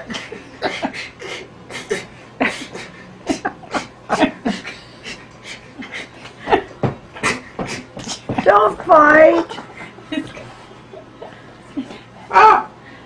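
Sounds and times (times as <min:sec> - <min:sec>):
man making monkey noises: 0:12.3 - 0:12.7.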